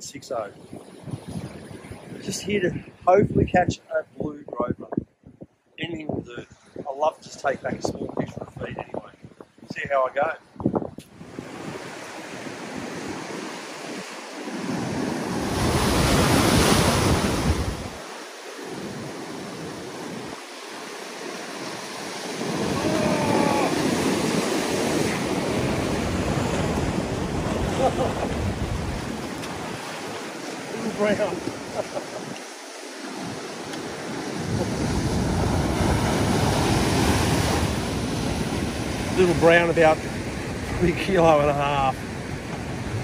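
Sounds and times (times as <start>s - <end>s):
wind gusting on microphone: 0.0s - 18.0s, 21.6s - 43.0s
surf breaking over rocks: 11.2s - 43.0s.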